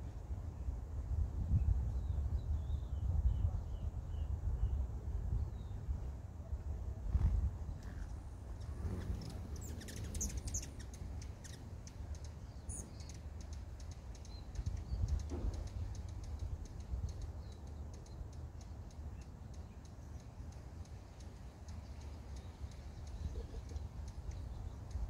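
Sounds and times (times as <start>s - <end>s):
hummingbird chip notes: 7.8s - 15.2s.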